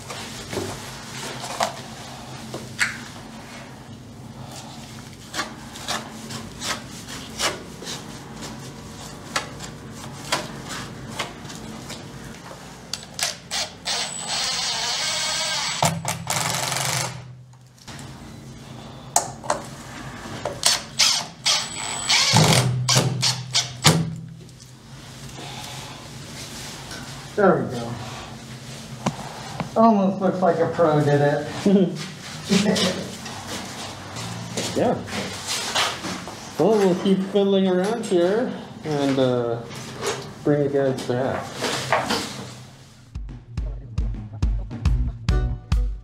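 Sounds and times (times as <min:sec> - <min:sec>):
cordless power tool running: 0:13.5 - 0:17.3.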